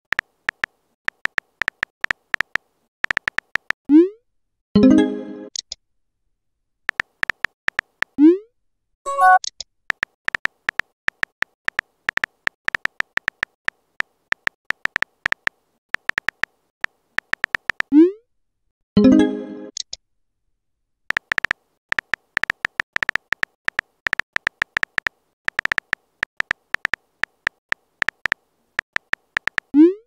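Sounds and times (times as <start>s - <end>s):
phone keyboard clicks: 0.1s - 3.8s, 6.9s - 8.2s, 9.3s - 17.9s, 21.1s - 29.7s
message chime: 4.8s - 5.5s, 9.1s - 9.4s, 19.0s - 19.7s.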